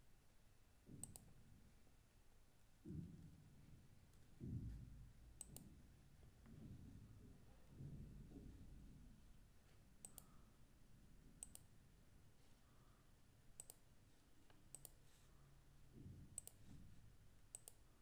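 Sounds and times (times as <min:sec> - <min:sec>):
computer mouse clicking: 0:01.0 - 0:01.4, 0:05.4 - 0:05.7, 0:10.0 - 0:10.4, 0:11.4 - 0:11.7, 0:13.6 - 0:13.9, 0:14.5 - 0:15.1, 0:16.4 - 0:16.7, 0:17.5 - 0:17.8.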